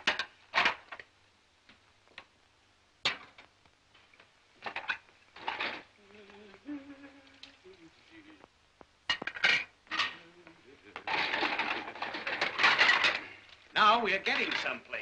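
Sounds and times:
crockery clinking and clattering: 4.6 - 5.9, 9.1 - 10.2, 11.0 - 13.4, 14.3 - 14.8.

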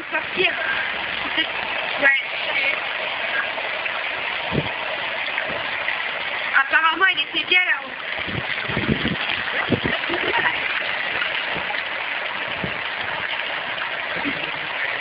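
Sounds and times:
hot tub jets bubbling: 0.0 - 15.0
soft low thumps: 4.4 - 5.8, 8.2 - 14.8.

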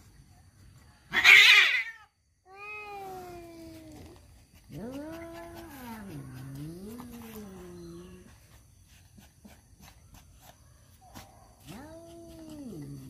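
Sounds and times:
cats yowling: 1.1 - 8.3, 11.6 - 13.0.

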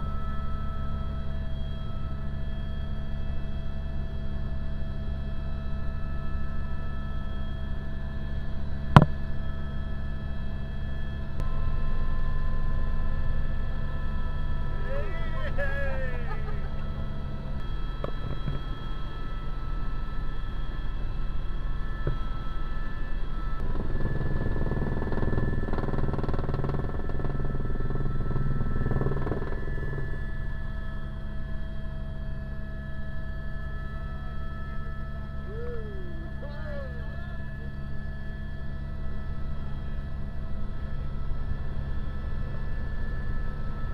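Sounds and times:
helicopter rotor and engine rumble: 0.0 - 43.9
turbine whine: 0.0 - 43.9.

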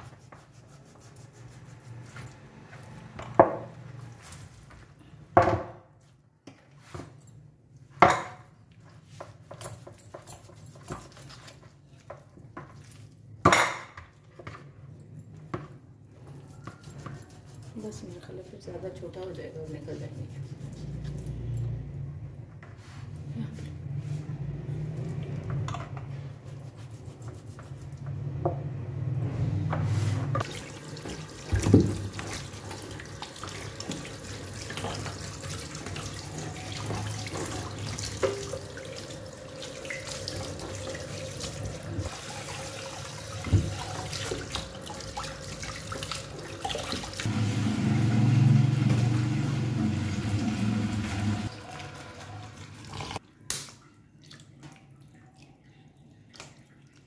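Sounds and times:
tap water splashing into tub: 30.4 - 36.1, 42.8 - 47.3.

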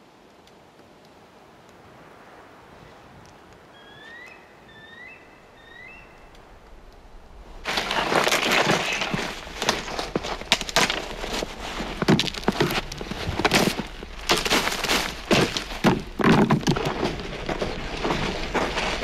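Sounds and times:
dry branches snapping: 7.6 - 19.0.

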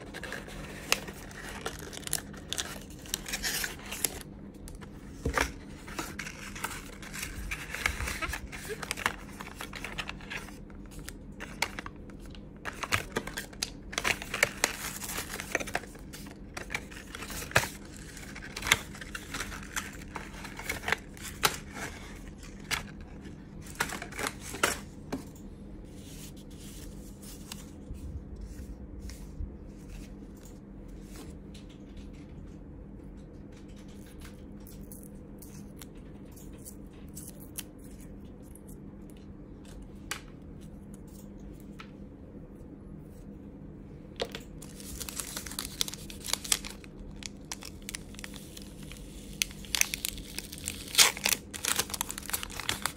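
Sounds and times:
cardboard and paper rustling: 0.0 - 25.3, 44.2 - 52.9.

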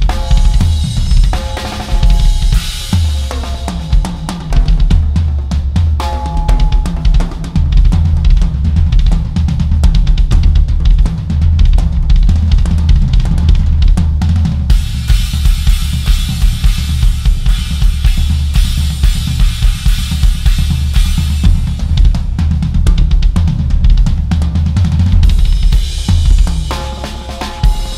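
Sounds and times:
cymbals crashing: 0.0 - 4.0, 6.0 - 7.3, 26.6 - 27.9
fast drum kit beat: 0.0 - 27.9.

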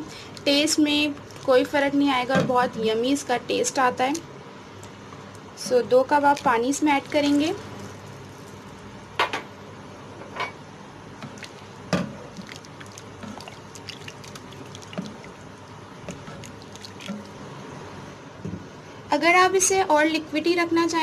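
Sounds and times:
liquid sloshing in pan: 5.7 - 8.9, 11.2 - 17.7.

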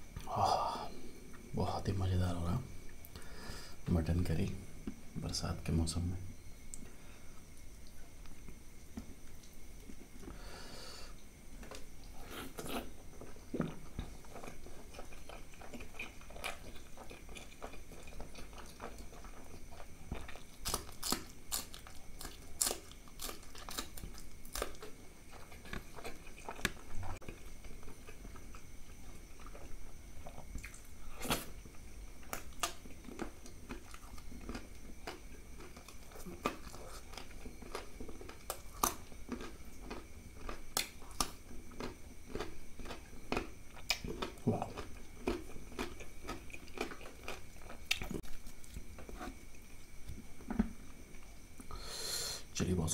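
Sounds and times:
man chewing and lip smacking: 11.6 - 51.3.

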